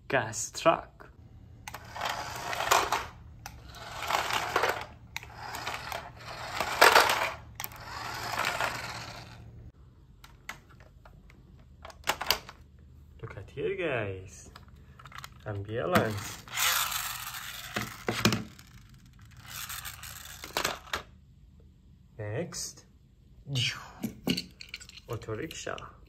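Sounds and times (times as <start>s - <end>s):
toy wheels rolling on tiles: 1.6s - 9.7s, 16.0s - 21.1s.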